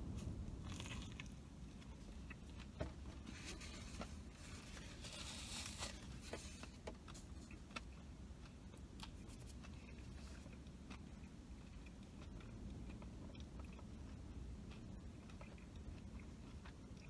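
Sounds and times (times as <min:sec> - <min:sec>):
biting into a burger: 0:00.6 - 0:02.7
faint chewing with clicks: 0:00.6 - 0:17.0
paper wrapper crinkling: 0:03.3 - 0:06.6.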